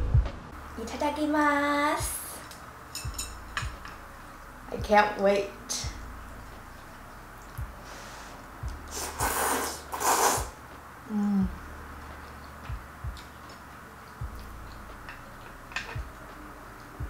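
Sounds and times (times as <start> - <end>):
soft low knocks: 0.0 - 0.6
loud noodle slurps: 8.9 - 10.6
person humming: 11.1 - 11.6.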